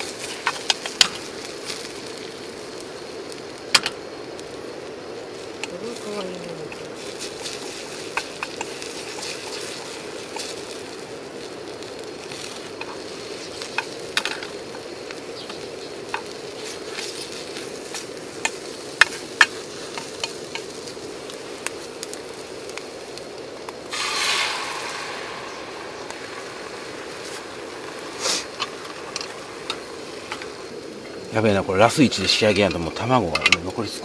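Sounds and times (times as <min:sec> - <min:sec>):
egg sizzling in a pan: 0:00.0 - 0:34.0
chopsticks clicking against pan: 0:18.4 - 0:20.7
egg pouring into hot pan: 0:23.7 - 0:30.7.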